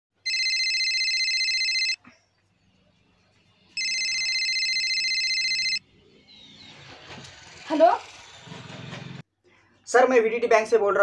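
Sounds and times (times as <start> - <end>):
mobile phone ringtone: 0.2 - 2.0, 3.8 - 5.8.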